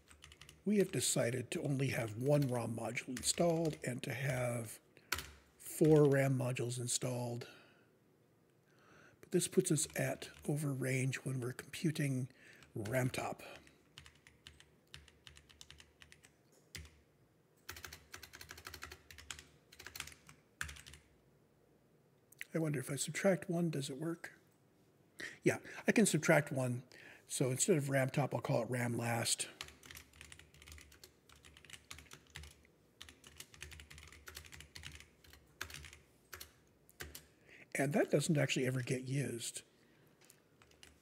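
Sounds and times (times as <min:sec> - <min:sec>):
computer keyboard typing: 0:00.0 - 0:00.6, 0:03.1 - 0:03.9, 0:05.1 - 0:06.2, 0:12.6 - 0:17.0, 0:17.6 - 0:21.1, 0:29.6 - 0:37.3, 0:40.2 - 0:41.0.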